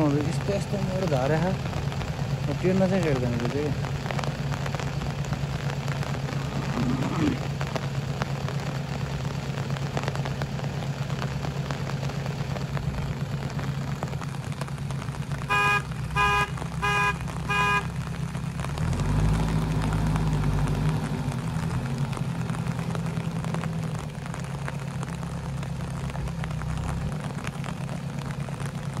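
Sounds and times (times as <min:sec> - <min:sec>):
diesel engine running: 0:00.0 - 0:29.0
horn toots: 0:15.4 - 0:18.0.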